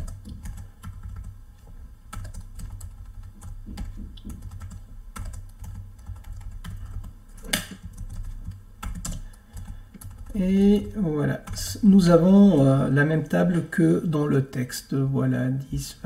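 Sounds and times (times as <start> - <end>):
keyboard keys tapping: 0.0 - 12.7.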